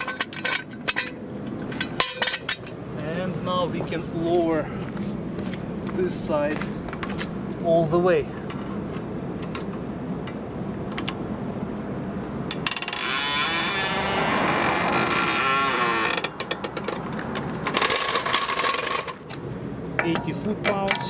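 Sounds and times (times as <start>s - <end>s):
jack clicking and rattling: 16.2s - 19.4s.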